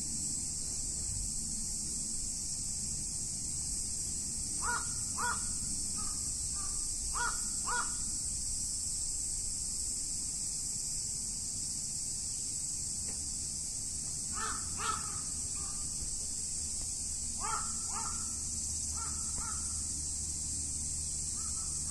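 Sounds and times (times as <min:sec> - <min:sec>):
high-pitched hiss: 0:00.0 - 0:21.9
crow cawing: 0:04.6 - 0:08.0, 0:14.3 - 0:15.8, 0:17.4 - 0:19.8, 0:21.4 - 0:21.8.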